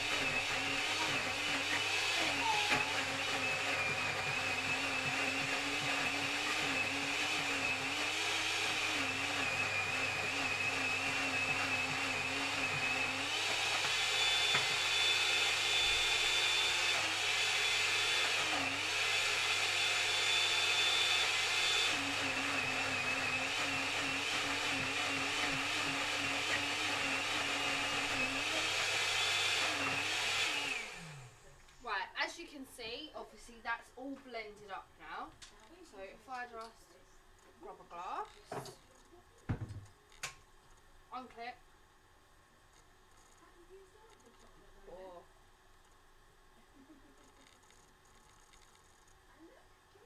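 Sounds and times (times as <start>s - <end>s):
blender motor running: 0.0s - 31.5s.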